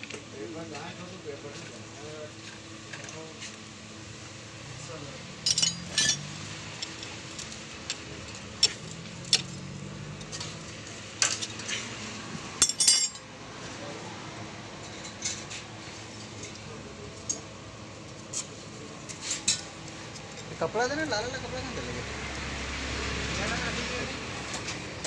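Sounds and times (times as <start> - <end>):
metal tools clinking: 5.4 - 7.0, 12.6 - 13.3.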